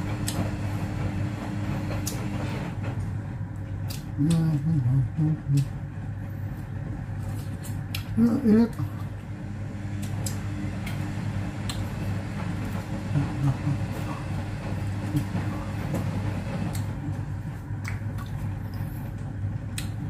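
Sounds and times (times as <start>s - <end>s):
washing machine humming: 0.0s - 20.0s
small eating clicks: 3.5s - 5.8s, 10.0s - 11.9s, 12.7s - 17.1s.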